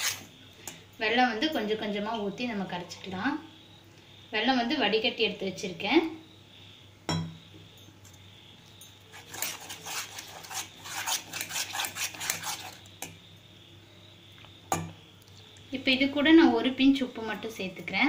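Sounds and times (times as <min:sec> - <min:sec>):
metal spoon scraping steel bowl: 0:00.0 - 0:00.3, 0:09.1 - 0:13.1
spoon knock on bowl: 0:07.1 - 0:07.4.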